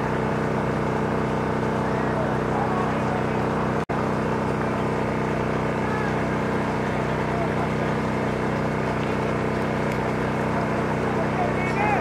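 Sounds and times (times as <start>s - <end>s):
steady mechanical drone: 0.0s - 12.0s.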